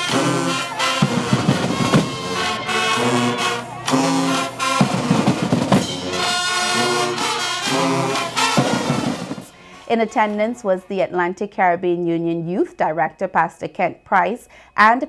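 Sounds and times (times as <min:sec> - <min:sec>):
snare and bass drum strokes: 0:00.0 - 0:09.5
brass holding long chords: 0:00.0 - 0:10.5.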